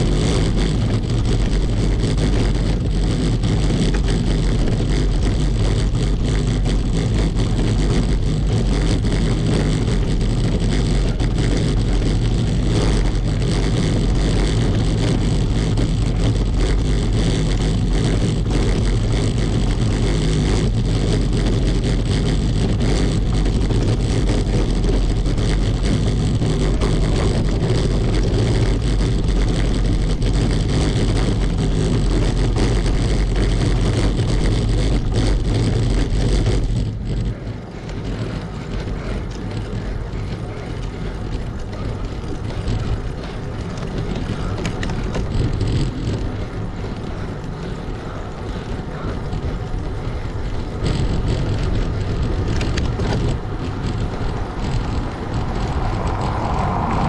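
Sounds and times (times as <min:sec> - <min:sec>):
bicycle rattling over cobblestones: 0:00.0 - 0:57.0
bicycle rolling on asphalt: 0:00.0 - 0:57.0
wind noise: 0:00.0 - 0:57.0
small clicks: 0:36.7 - 0:56.2.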